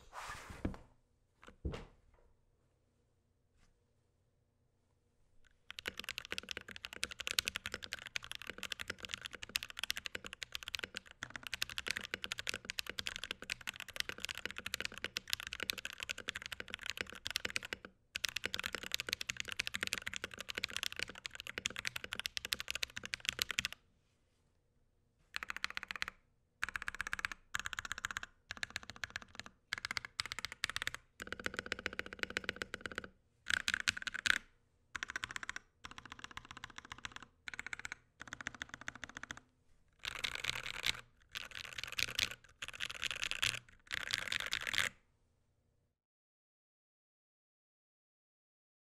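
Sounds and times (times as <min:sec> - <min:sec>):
mechanical keyboard typing: 0:05.5 - 0:23.8, 0:25.4 - 0:39.4, 0:40.0 - 0:44.9.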